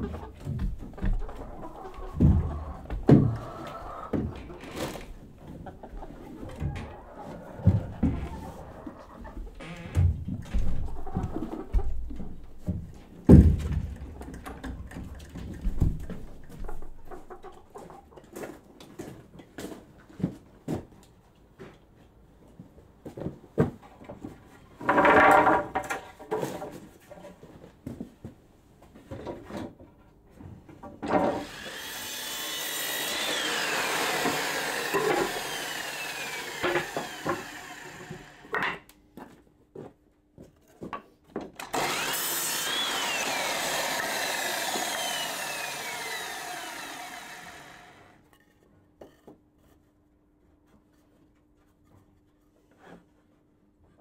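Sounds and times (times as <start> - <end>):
wooden boards clattering: 11.9 - 16.1, 24.8 - 26.9
power saw running: 31.3 - 38.5, 41.6 - 48.2.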